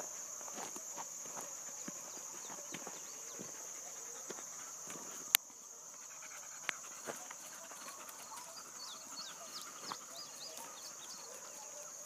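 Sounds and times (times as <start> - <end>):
high-pitched insect chorus: 0.0 - 12.0
faint ticks: 6.3 - 8.2.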